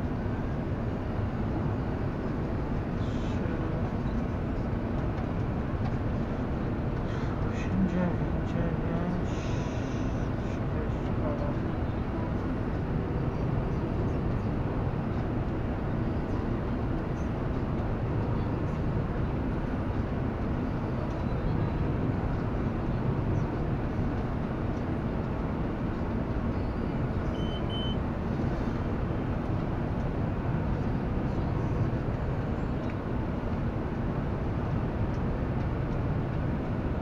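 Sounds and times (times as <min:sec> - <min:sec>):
short high beep: 0:27.3 - 0:28.0.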